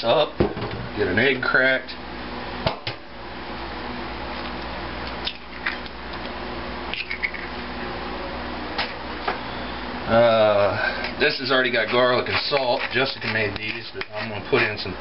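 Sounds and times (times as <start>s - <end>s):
steady background hum: 0.0s - 15.0s
egg cracking into metal bowl: 6.9s - 7.5s.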